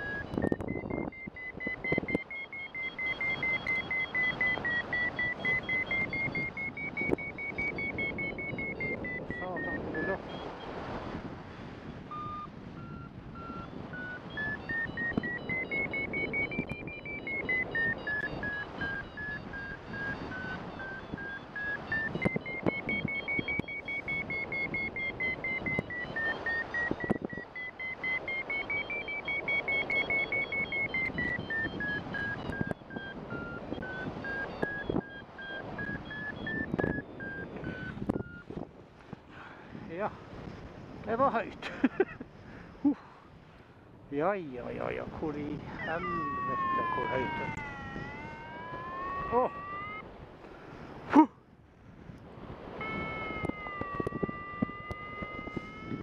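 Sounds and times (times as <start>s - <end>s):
variometer beeping rapidly: 0.0s - 10.8s, 11.8s - 38.6s, 44.4s - 50.1s, 52.6s - 56.0s
wind hissing on microphone: 0.2s - 2.2s, 28.2s - 41.5s, 50.0s - 56.0s.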